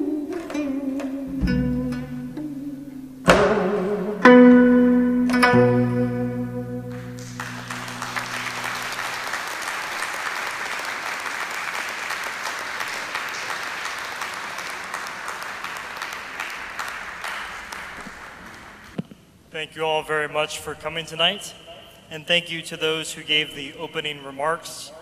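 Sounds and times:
audience applauding: 6.9 - 19.0.

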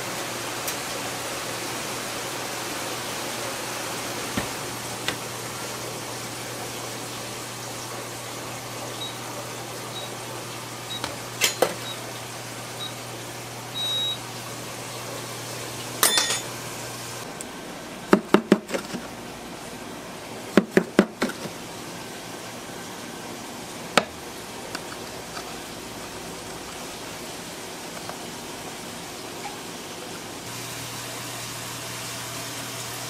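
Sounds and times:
kitchen appliance hum: 0.0 - 33.0
high electronic beeps: 13.8 - 14.2
plastic scraper knocking on tray: 18.1 - 19.0, 20.6 - 21.5.

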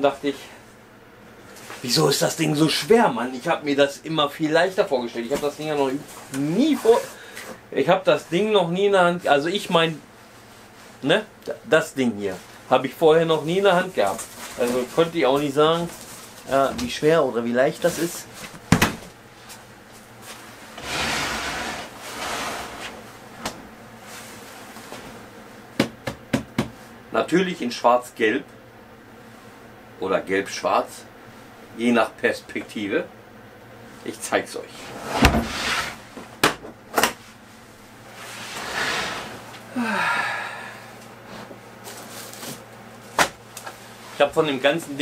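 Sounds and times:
sharp knocks on plastic case: 25.8 - 26.8
breathy exhale: 39.7 - 41.0.

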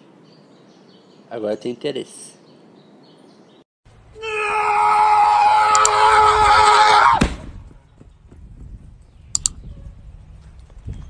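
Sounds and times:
loud scream: 4.2 - 7.3.

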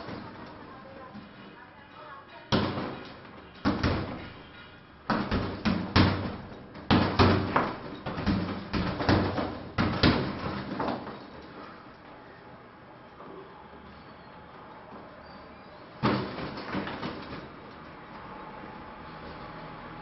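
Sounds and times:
punches thudding on punching bag: 2.5 - 4.4, 5.1 - 11.2, 16.0 - 17.5.

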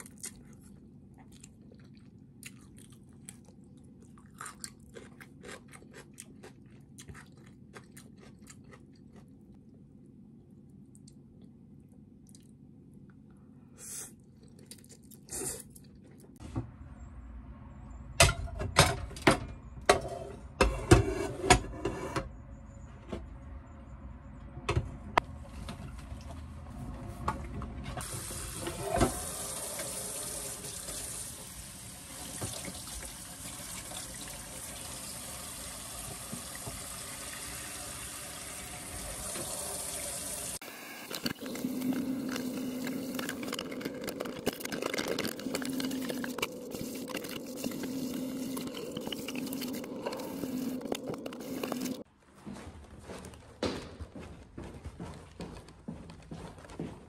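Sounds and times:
tap water running: 28.0 - 52.0.

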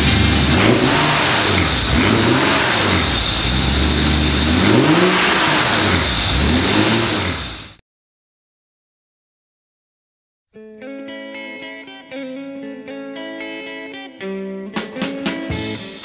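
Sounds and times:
car engine revving and idling: 0.0 - 7.8.

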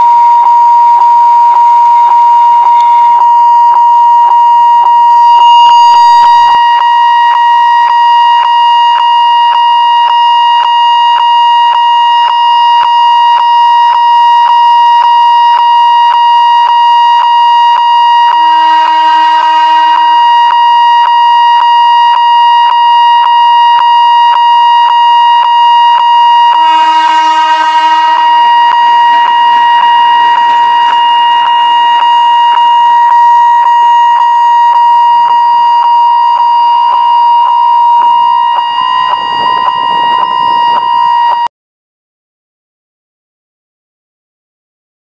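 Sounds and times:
level-crossing warning signal ringing: 0.0 - 41.5
train whistle: 0.0 - 41.5
train running past: 18.4 - 21.5, 26.2 - 32.4, 37.6 - 41.5.

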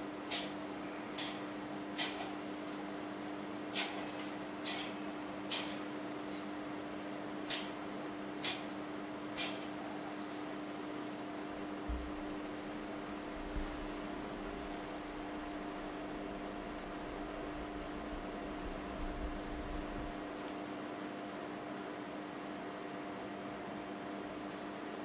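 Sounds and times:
metal censer chains clinking: 3.7 - 6.5
low hum: 11.8 - 20.4.

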